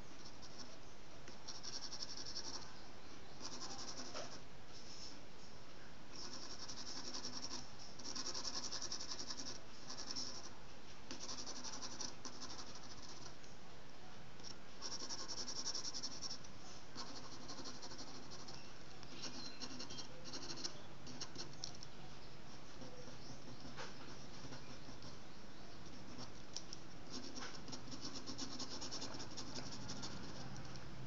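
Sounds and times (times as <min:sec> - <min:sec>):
pencil scratching on paper: 0:01.4 - 0:02.7, 0:03.4 - 0:05.0, 0:06.2 - 0:10.5, 0:11.1 - 0:13.4, 0:14.8 - 0:16.4, 0:17.0 - 0:21.7, 0:22.5 - 0:26.4, 0:27.1 - 0:30.6.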